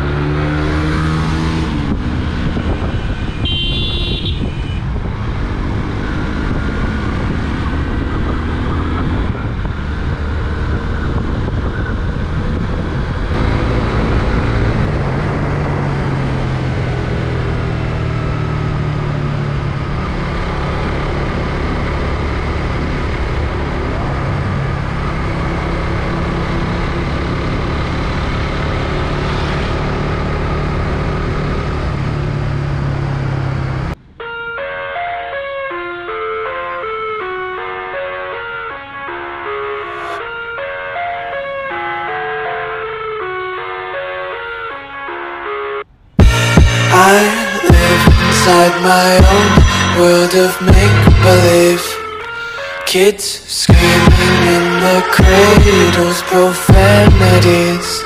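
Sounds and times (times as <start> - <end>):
motorcycle engine revving: 0.0 - 3.7, 4.8 - 34.0
wind noise: 1.5 - 18.2
short high tone: 53.0 - 58.0.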